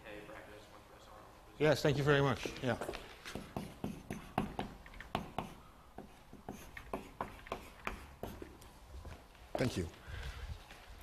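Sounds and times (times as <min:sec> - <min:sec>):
chalk writing on blackboard: 0:02.4 - 0:08.7.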